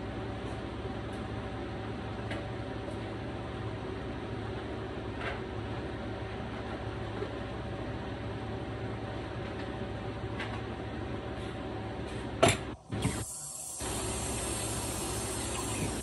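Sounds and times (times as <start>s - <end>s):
food simmering in a skillet: 13.7s - 16.0s.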